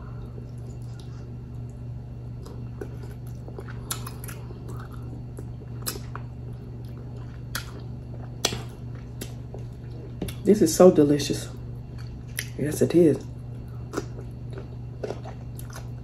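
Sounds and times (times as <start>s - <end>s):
chewing and wet lip-smacking: 0.2s - 10.5s, 11.8s - 12.6s, 13.2s - 16.0s.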